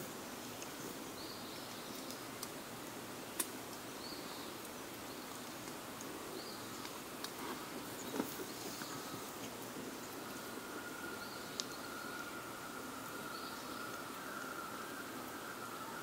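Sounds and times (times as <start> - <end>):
campfire crackling: 0.0 - 16.0
low fire hiss: 0.0 - 16.0
fire popping: 3.3 - 3.8.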